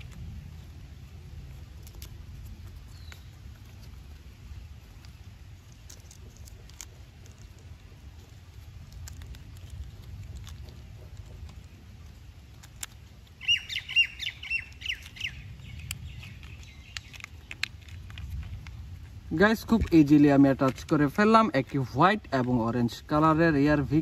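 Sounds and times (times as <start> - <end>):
low steady rumble: 0.0 - 24.0
bird calling: 13.2 - 17.6
plastic toy parts clicking: 15.8 - 18.7.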